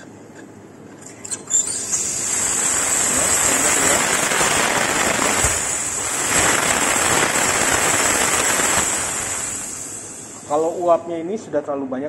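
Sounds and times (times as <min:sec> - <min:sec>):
espresso machine steam wand hissing: 0:01.2 - 0:10.9.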